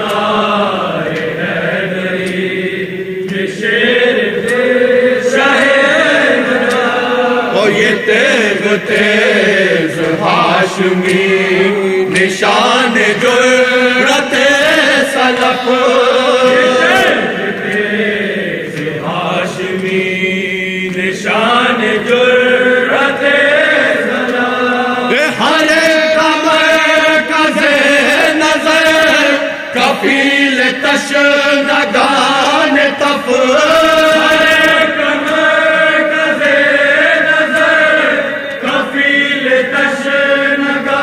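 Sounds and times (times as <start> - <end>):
group of men singing along: 0.0 - 41.0
man singing lead into microphone: 2.2 - 18.0, 24.0 - 35.3.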